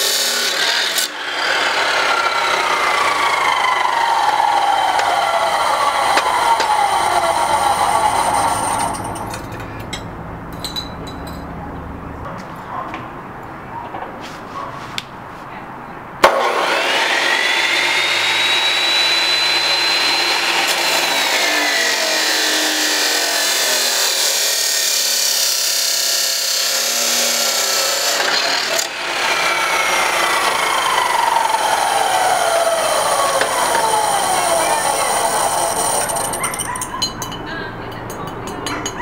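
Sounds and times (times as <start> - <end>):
chop saw motor whine: 0.0 - 9.4, 16.2 - 36.9
abrasive wheel grinding steel: 0.0 - 9.7, 16.3 - 39.0.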